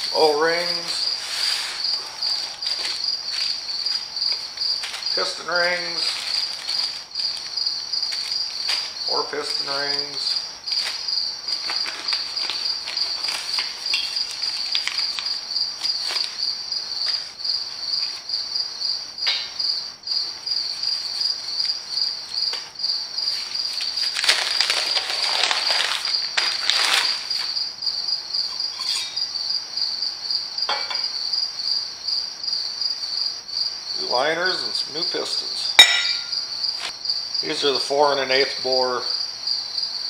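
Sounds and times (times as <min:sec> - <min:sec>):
cricket chirping: 0:00.0 - 0:40.0
cardboard and paper rustling: 0:02.4 - 0:07.5, 0:10.7 - 0:16.4, 0:22.5 - 0:27.6.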